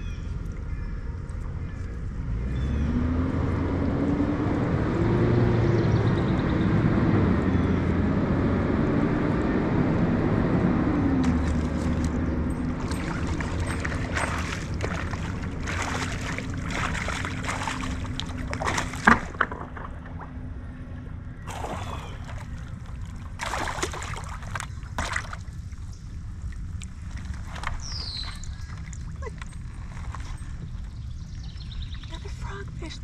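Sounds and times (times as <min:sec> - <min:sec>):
low steady rumble: 0:00.0 - 0:33.0
water splashing and sloshing: 0:11.2 - 0:31.5.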